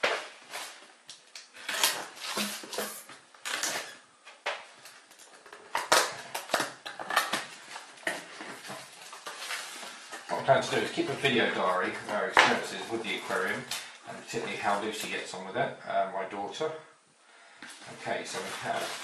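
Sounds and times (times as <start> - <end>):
cardboard being handled: 17.8 - 19.0.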